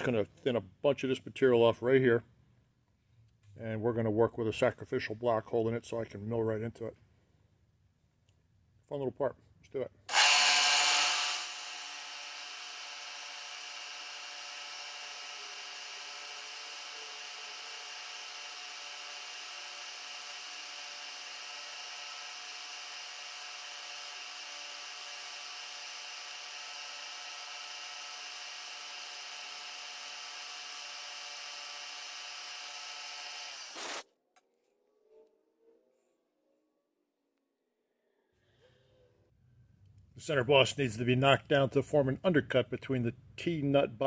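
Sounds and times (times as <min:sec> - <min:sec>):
milling machine cutting metal: 0:10.1 - 0:34.0.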